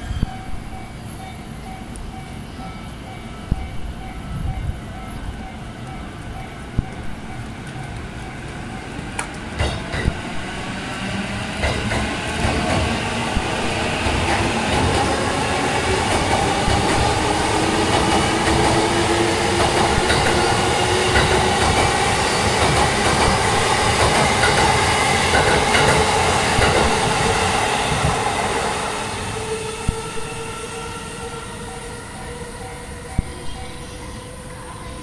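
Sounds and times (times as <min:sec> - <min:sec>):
level crossing warning bell: 0:00.0 - 0:09.1, 0:29.9 - 0:34.1.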